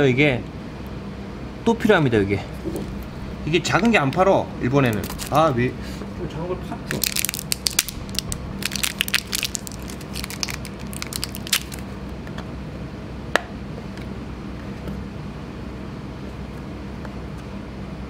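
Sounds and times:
low hum: 0:02.4 - 0:05.4, 0:06.9 - 0:12.2
plastic film crinkling: 0:04.9 - 0:05.4, 0:06.9 - 0:11.8.

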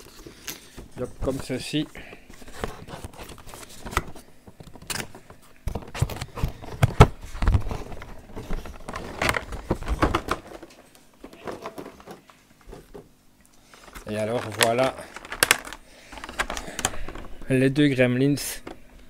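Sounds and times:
cardboard packaging rustling: 0:00.0 - 0:12.9, 0:13.7 - 0:17.6.

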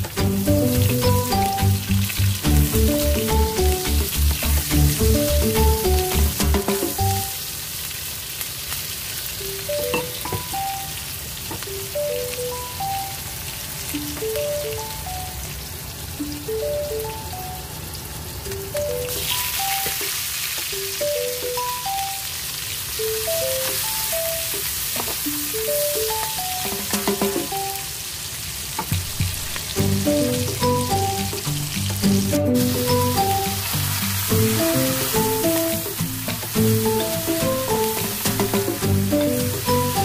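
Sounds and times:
background music with heavy beat: 0:00.0 - 0:07.2, 0:28.9 - 0:40.0
onions sizzling in hot oil: 0:00.0 - 0:14.7, 0:18.0 - 0:40.0.

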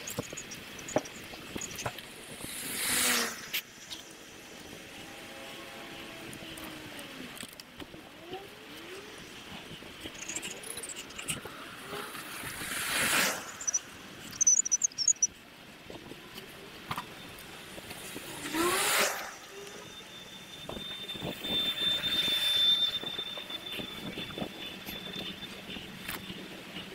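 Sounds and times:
steady high whine: 0:00.0 - 0:26.9
wind and road noise: 0:00.0 - 0:26.9
brief high chirps: 0:13.5 - 0:15.3.

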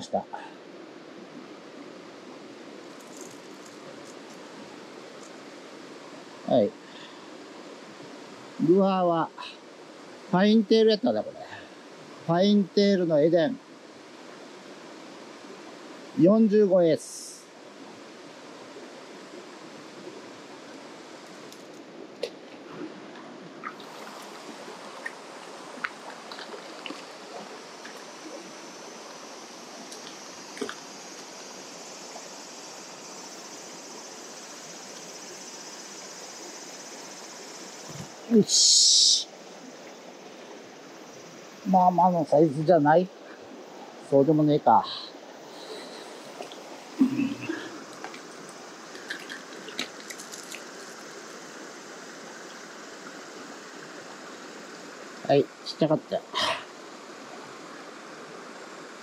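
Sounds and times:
stream running over rocks: 0:00.0 - 0:59.0
high insect buzz: 0:01.3 - 0:59.0
small clicks and splashes: 0:02.9 - 0:04.4, 0:25.0 - 0:27.1, 0:29.9 - 0:30.8, 0:47.9 - 0:51.1.

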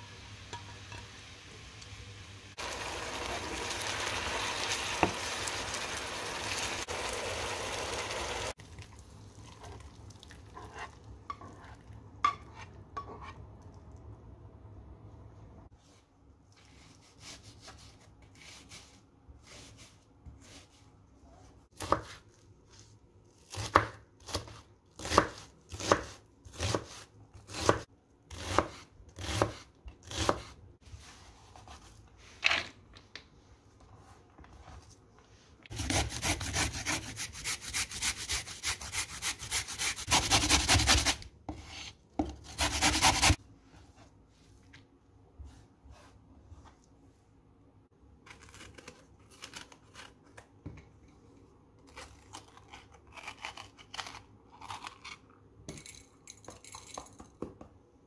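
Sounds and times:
knife chopping on wooden board: 0:23.5 - 0:30.5, 0:39.4 - 0:43.4
carrot being grated: 0:35.7 - 0:41.2, 0:42.5 - 0:43.4.

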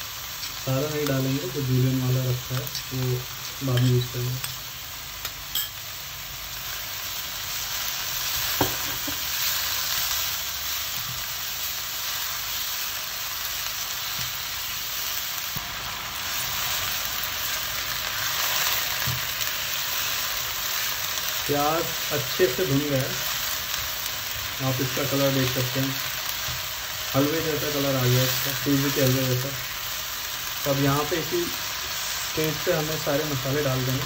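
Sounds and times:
onions sizzling in hot oil: 0:00.0 - 0:34.0
spatula knocking and scraping pan: 0:08.5 - 0:09.3.

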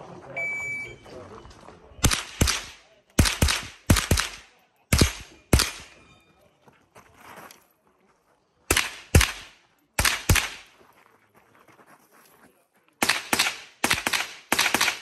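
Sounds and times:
rifle shots: 0:02.0 - 0:06.0, 0:08.7 - 0:10.7, 0:13.0 - 0:15.0.

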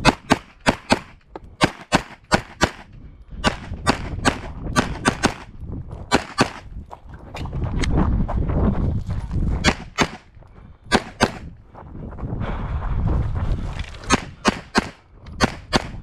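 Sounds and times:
pistol shots: 0:00.0 - 0:05.5, 0:06.1 - 0:06.6, 0:09.6 - 0:10.3, 0:10.9 - 0:11.4, 0:14.1 - 0:16.0.

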